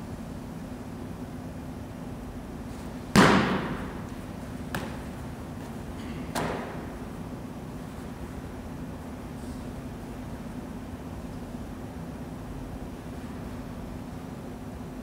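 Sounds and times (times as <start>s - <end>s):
football smacking into hands: 3.1s - 3.8s, 4.7s - 5.1s.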